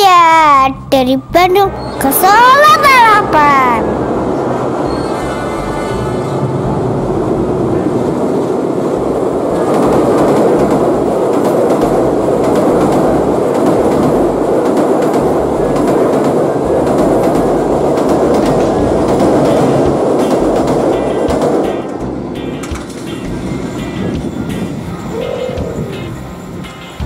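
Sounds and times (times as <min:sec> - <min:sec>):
train wheels on rail: 0:01.6 - 0:27.0
wheels clattering over rail joints: 0:07.5 - 0:27.0.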